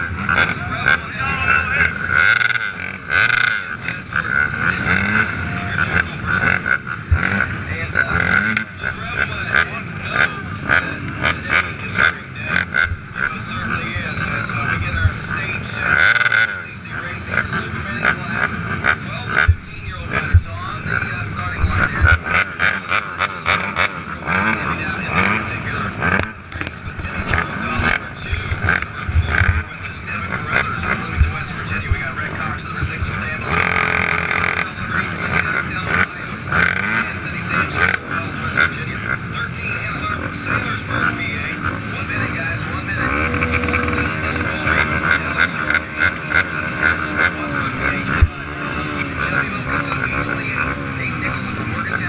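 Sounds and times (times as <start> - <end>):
atv engines revving: 0.0 - 52.0
crowd voices: 0.0 - 52.0.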